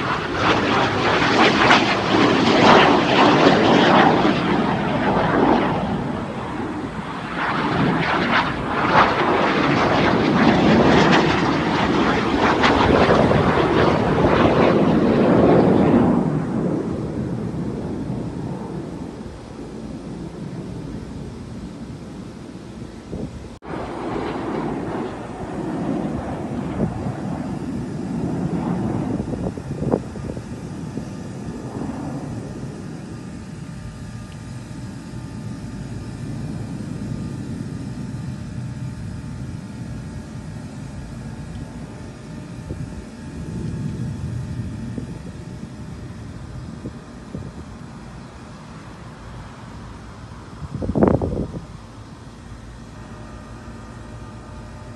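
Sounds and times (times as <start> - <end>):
jets flying over: 0.0 - 54.9.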